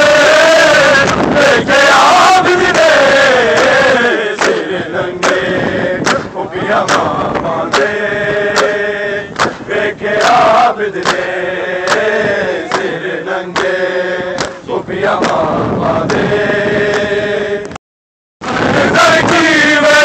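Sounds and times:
men chanting in unison: 0:00.0 - 0:17.7, 0:18.4 - 0:20.0
hands slapping bare chests: 0:09.4 - 0:09.6, 0:11.0 - 0:11.3, 0:11.9 - 0:12.1, 0:14.4 - 0:14.6.

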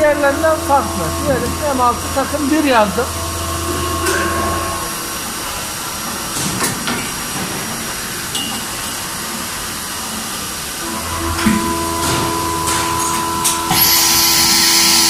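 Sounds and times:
steady tone: 0:00.0 - 0:06.5
low hum: 0:00.0 - 0:08.3
machining centre hissing: 0:00.0 - 0:15.0.

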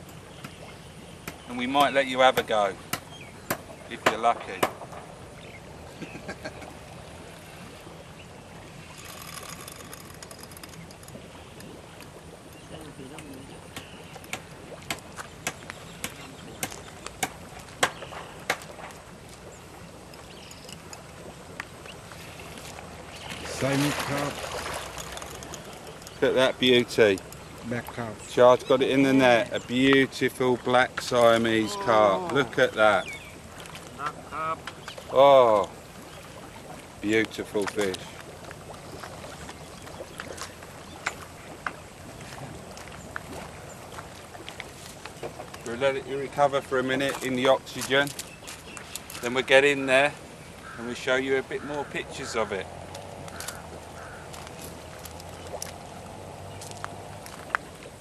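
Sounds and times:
steady background hiss: 0:00.0 - 0:39.4
water sloshing and splashing: 0:00.0 - 0:58.0
fish thrashing splashes: 0:06.8 - 0:28.3, 0:52.6 - 0:58.0.

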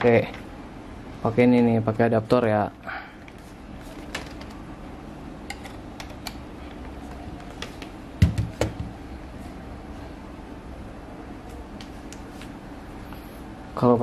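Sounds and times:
steady low hum: 0:00.0 - 0:14.0
laptop thumping on wooden desk: 0:08.2 - 0:08.9.

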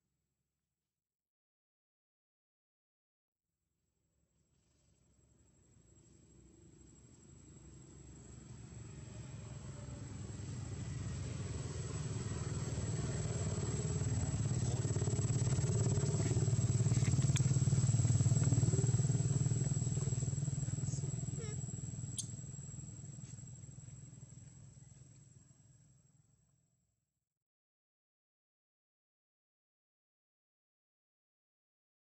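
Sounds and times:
vehicle engine approaching: 0:06.4 - 0:25.2.

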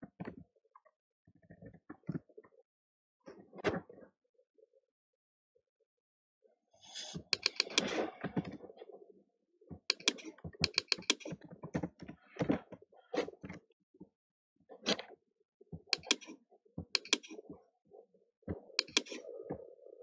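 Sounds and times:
keyboard and mouse clicks: 0:07.4 - 0:07.9, 0:09.9 - 0:11.3, 0:15.9 - 0:16.4, 0:17.0 - 0:17.4, 0:18.8 - 0:19.2.

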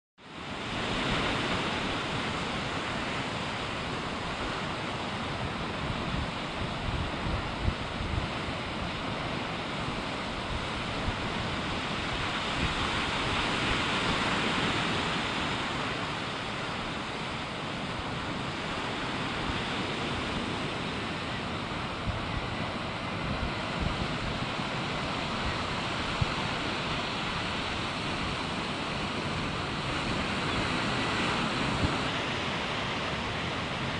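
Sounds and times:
sea surf washing: 0:00.2 - 0:33.9
wind rumbling on microphone: 0:00.3 - 0:33.9.

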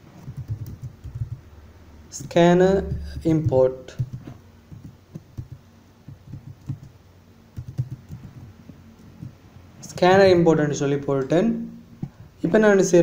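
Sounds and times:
keyboard typing clicks: 0:00.2 - 0:01.4, 0:02.8 - 0:07.0, 0:07.6 - 0:09.4.

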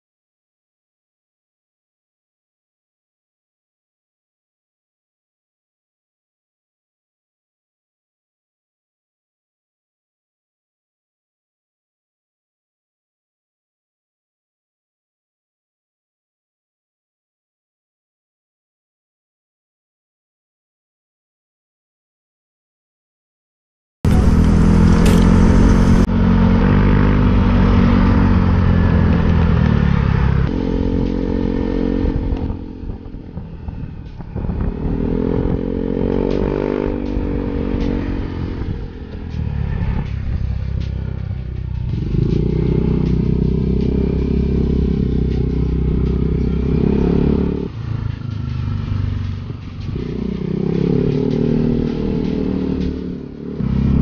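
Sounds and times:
scooter engine revving: 0:24.1 - 0:32.3
road and wind noise: 0:24.1 - 0:54.0.

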